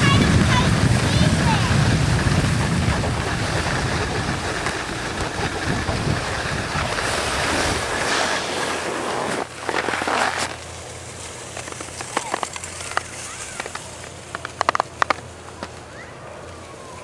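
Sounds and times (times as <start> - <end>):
wind buffeting microphone: 0.0 - 9.0
skis hissing over snow: 0.0 - 14.1
skis scraping: 0.0 - 15.3.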